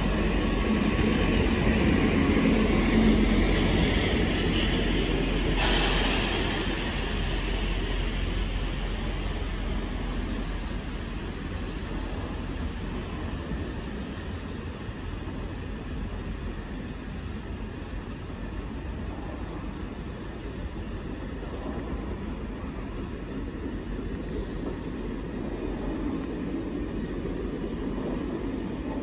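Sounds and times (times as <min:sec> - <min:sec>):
train coaches rumbling: 0:00.0 - 0:29.0
brief hiss: 0:05.6 - 0:08.6.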